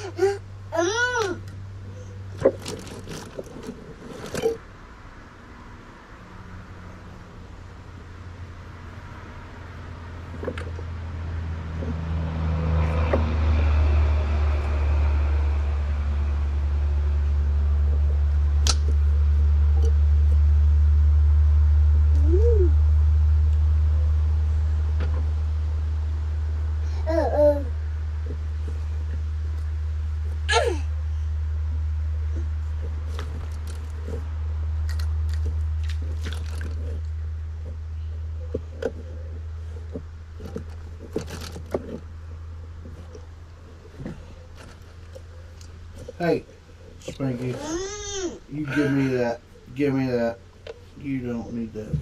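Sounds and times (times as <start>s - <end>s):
steady low hum: 0.0s - 52.0s
vehicle engine idling: 0.0s - 52.0s.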